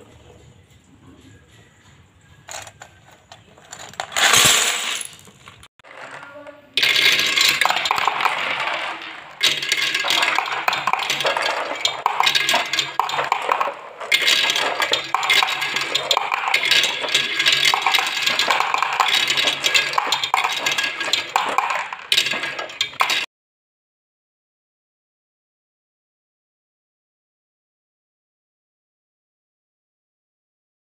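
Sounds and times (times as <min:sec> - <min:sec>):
marbles clacking into plastic bed: 0:02.5 - 0:23.3.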